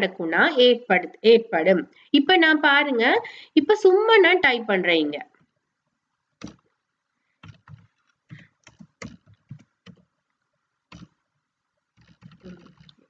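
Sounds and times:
typing on computer keyboard: 7.4s - 10.1s, 10.9s - 11.2s, 12.0s - 13.0s.

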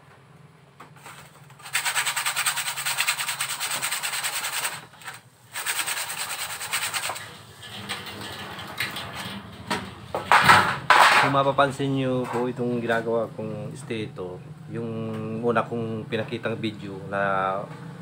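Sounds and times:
blade scraping on a whetstone: 1.0s - 7.4s.

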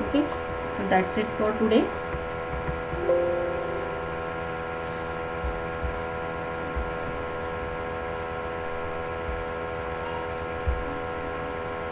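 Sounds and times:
soft low thumps: 0.0s - 10.0s, 10.6s - 11.3s
electrical hum and buzz: 0.0s - 11.9s.

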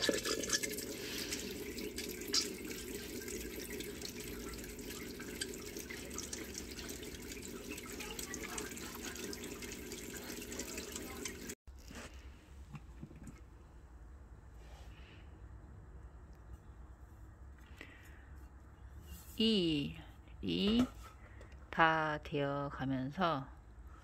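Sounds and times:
pump humming: 0.0s - 11.6s
water spraying and splashing: 0.0s - 11.6s.

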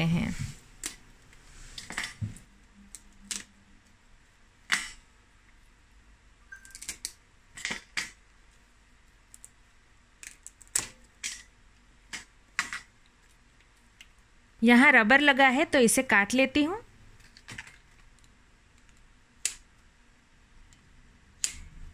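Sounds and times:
crab shell cracking: 9.2s - 11.5s, 17.2s - 19.7s.

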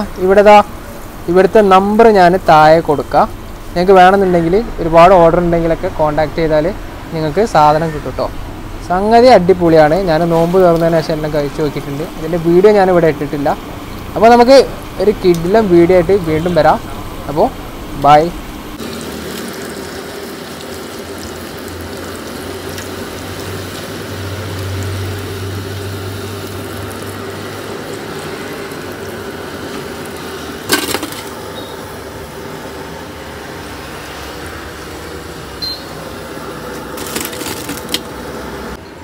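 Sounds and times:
food deep-frying in oil: 0.0s - 38.9s
metal clank: 30.7s - 31.3s.

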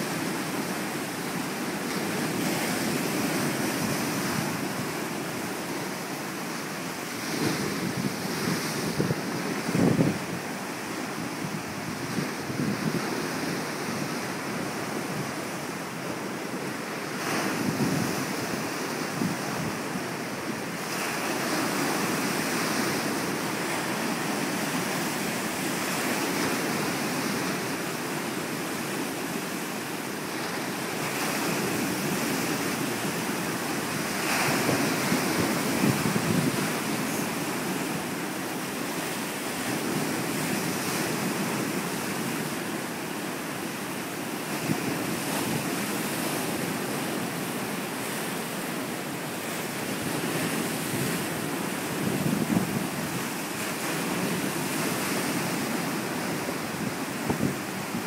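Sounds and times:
wind buffeting microphone: 7.2s - 10.6s, 17.5s - 19.8s, 34.1s - 37.8s, 51.9s - 53.4s, 56.3s - 58.0s
surf breaking over rocks: 30.0s - 43.0s.

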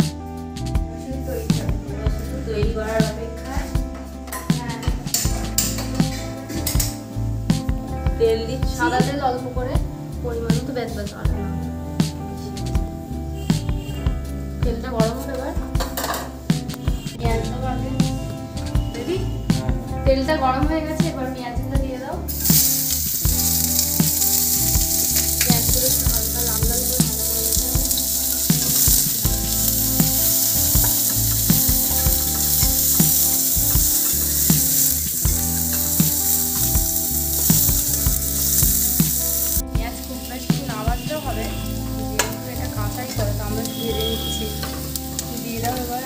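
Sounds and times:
onions sizzling in hot oil: 22.3s - 46.0s.

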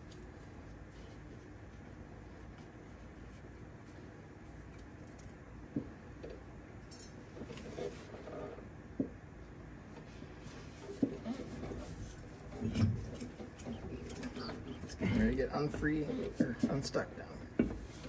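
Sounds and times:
low steady hum: 0.0s - 18.0s.

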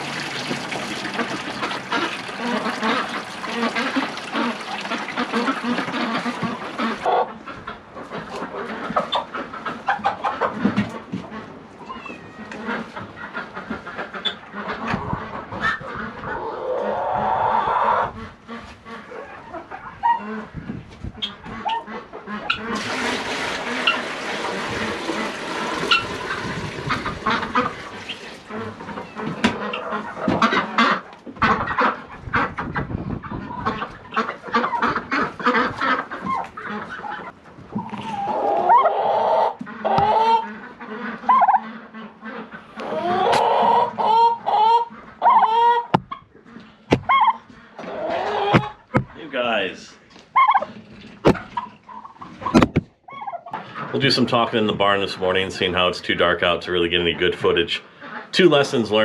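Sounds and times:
chickens ducks and turkeys calling: 0.0s - 59.0s
taps and knocks near microphone: 45.9s - 46.2s, 46.9s - 47.1s, 52.5s - 52.9s.

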